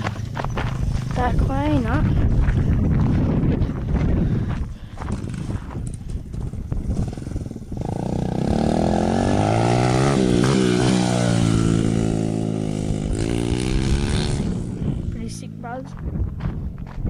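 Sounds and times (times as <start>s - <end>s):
dirt bike engine buzzing past: 5.1s - 15.4s.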